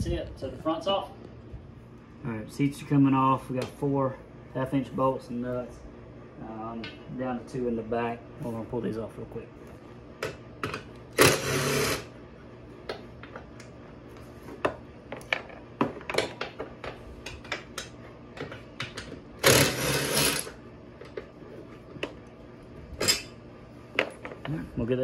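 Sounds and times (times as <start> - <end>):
cordless drill spinning: 11.2 - 12.1, 19.4 - 20.6.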